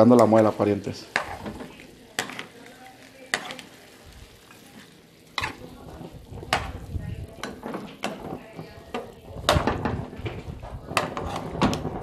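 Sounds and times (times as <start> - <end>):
meat sizzling in a pan: 0.0 - 12.0
spoon scraping and knocking pan: 0.0 - 12.0.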